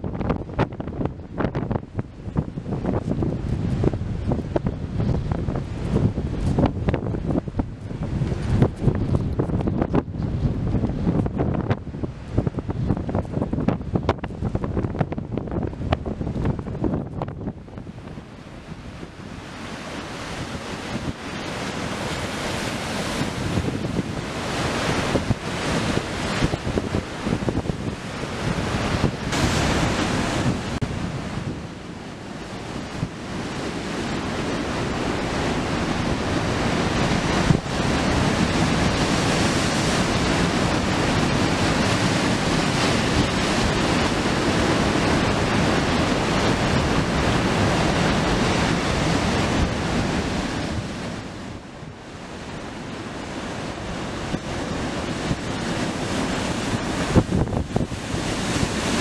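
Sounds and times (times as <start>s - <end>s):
wind buffeting microphone: 0.0s - 59.0s
surf breaking on rocks: 19.4s - 51.4s, 53.5s - 59.0s.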